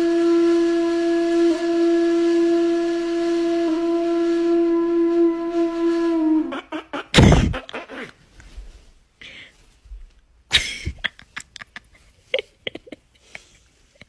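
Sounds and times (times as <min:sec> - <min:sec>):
held wind instrument note: 0:00.0 - 0:06.6.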